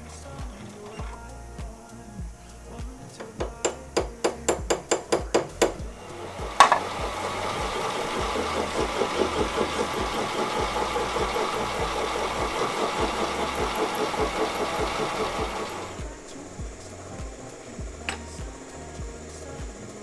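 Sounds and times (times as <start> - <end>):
metal lathe running: 5.6 - 19.8.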